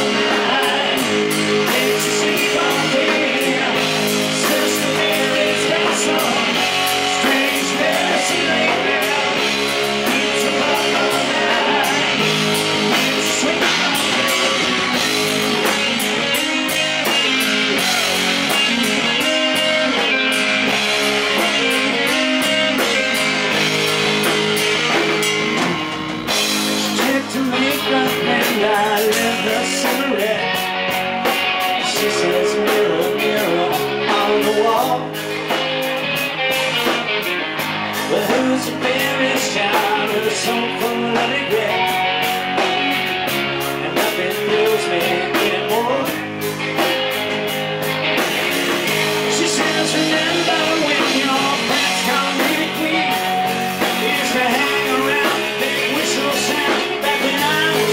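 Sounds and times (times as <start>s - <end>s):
live rock band playing: 0.0s - 57.9s.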